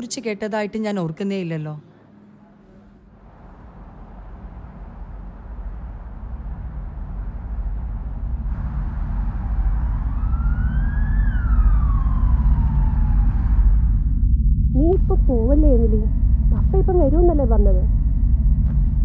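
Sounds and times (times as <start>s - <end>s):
low rumble of city ambience: 0.0s - 19.0s
emergency vehicle siren wailing: 8.6s - 14.2s.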